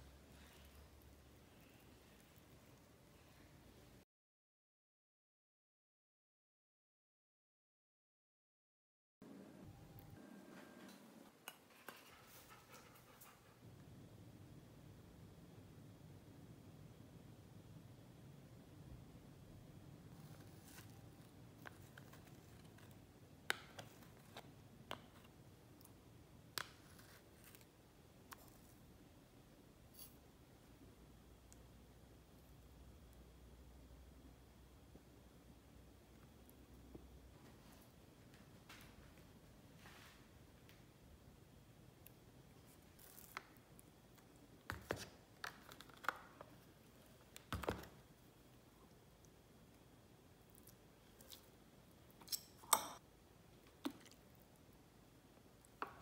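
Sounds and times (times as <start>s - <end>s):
metal spoons scraping and clinking: 29.9s - 30.2s, 52.2s - 53.0s.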